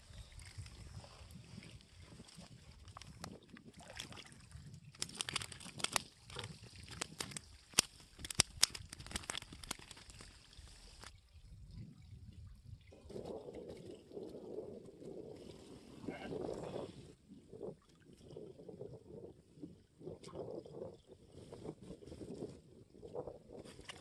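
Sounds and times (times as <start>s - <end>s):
water splashing and dripping: 0.3s - 14.3s
sharp wet clicks: 4.9s - 11.1s.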